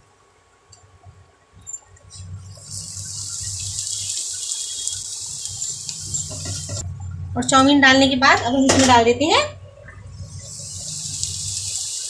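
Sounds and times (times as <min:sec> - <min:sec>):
low hum: 0:01.0 - 0:04.2, 0:04.8 - 0:11.8
noodles sizzling in oil: 0:02.2 - 0:06.8, 0:10.0 - 0:12.0.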